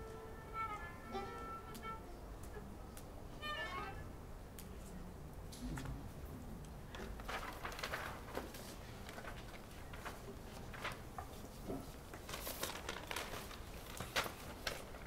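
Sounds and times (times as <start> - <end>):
sheet music page turning: 6.9 - 15.0.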